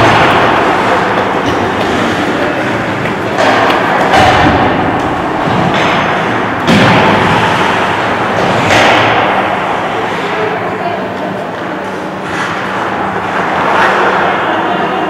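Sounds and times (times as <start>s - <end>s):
thuds against rink boards: 0.0s - 9.7s
reverberant ice rink din: 0.0s - 15.0s.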